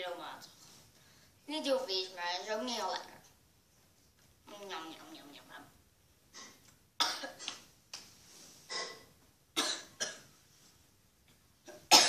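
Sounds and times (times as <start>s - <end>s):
girl coughing: 6.4s - 7.5s, 8.7s - 10.3s, 11.7s - 12.0s.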